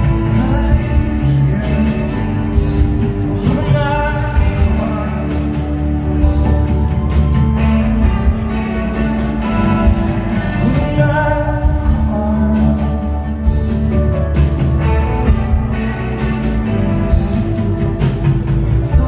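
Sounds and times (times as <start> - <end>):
man singing: 0.0 - 6.2, 10.4 - 14.2, 18.8 - 19.0
live rock band playing: 0.0 - 19.0.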